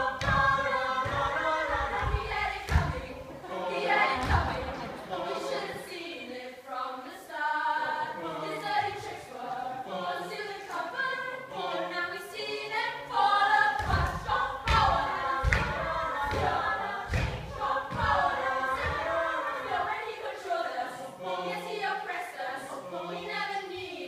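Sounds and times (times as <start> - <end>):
low thumps: 0.0 - 3.3, 13.8 - 19.4
group of voices singing: 0.0 - 24.0.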